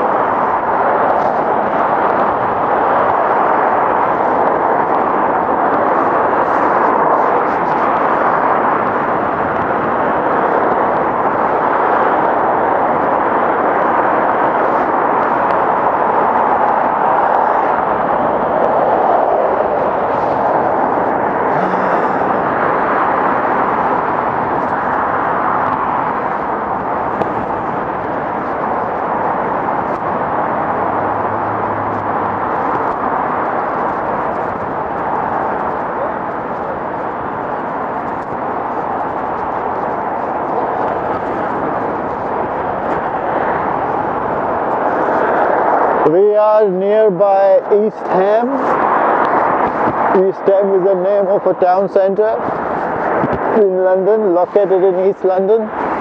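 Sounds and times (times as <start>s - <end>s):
road traffic noise: 0.0s - 56.0s
wind rush on microphone: 0.0s - 56.0s.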